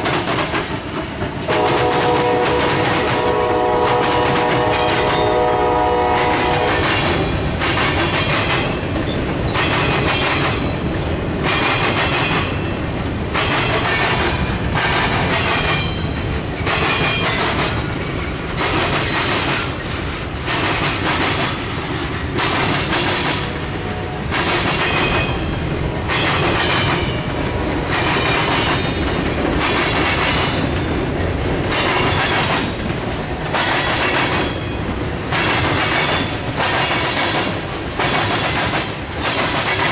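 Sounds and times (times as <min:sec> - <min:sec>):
train wheels clattering: 0:00.0 - 0:39.9
locomotive horn: 0:01.5 - 0:07.1, 0:23.8 - 0:24.3.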